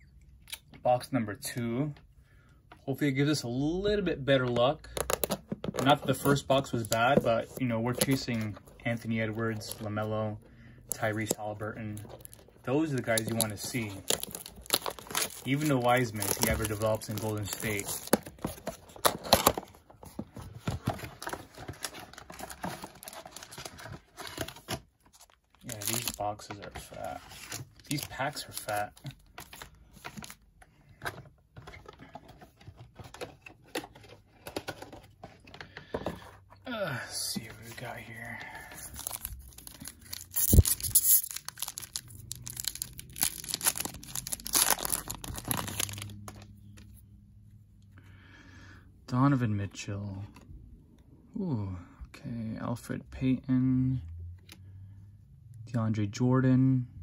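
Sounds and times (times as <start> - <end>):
foil wrapper crinkling: 12.2 - 18.7, 21.2 - 23.9, 24.5 - 26.3, 37.6 - 46.4
cellophane and cardboard tearing: 12.2 - 19.6, 21.2 - 29.6, 38.8 - 46.4
foil wrapper tearing: 38.9 - 46.2.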